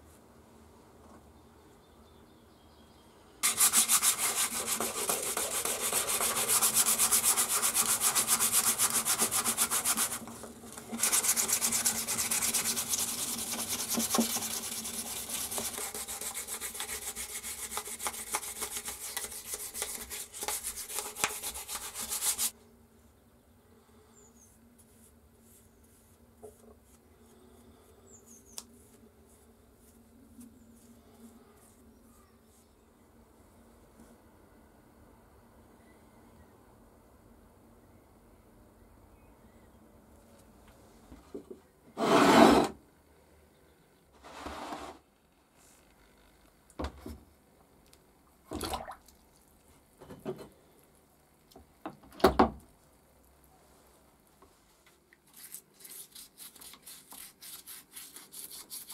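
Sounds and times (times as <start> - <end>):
hand rubbing on wooden handle: 3.4 - 10.3.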